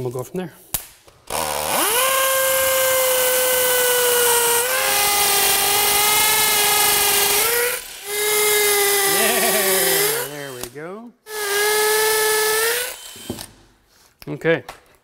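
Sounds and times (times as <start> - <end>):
drill motor whining: 1.3 - 13.6.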